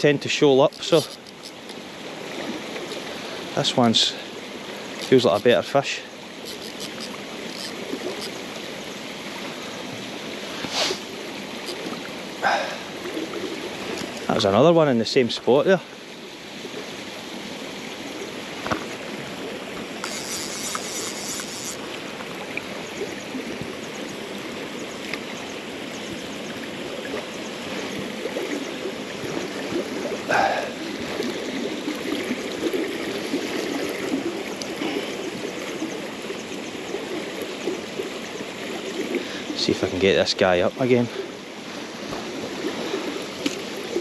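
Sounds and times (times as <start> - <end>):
river water flowing: 0.0 - 44.0
short high-pitched rattle: 6.4 - 8.4, 20.0 - 21.8.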